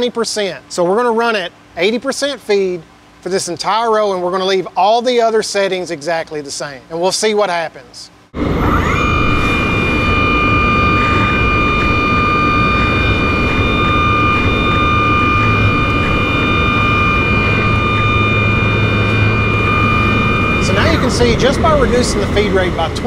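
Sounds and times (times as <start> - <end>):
low machine hum: 0.0 - 23.0
high spindle whine: 8.2 - 23.0.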